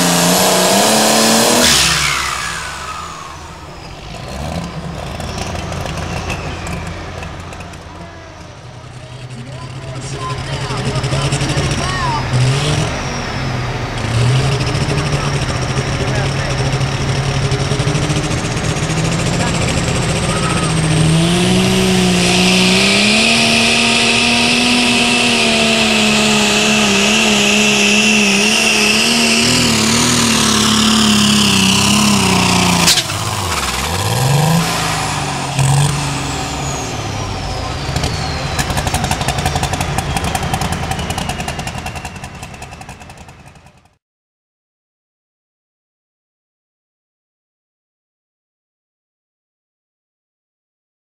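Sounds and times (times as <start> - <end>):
diesel engine at full throttle: 0.0 - 44.0
high turbo whine: 0.0 - 44.0
sharp crack: 21.6 - 36.6.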